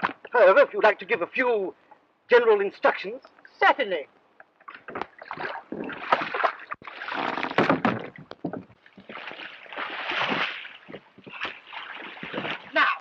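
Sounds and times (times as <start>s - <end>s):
wooden oars knocking on boat: 4.5s - 9.3s, 10.2s - 13.0s
water splashing: 4.6s - 13.0s.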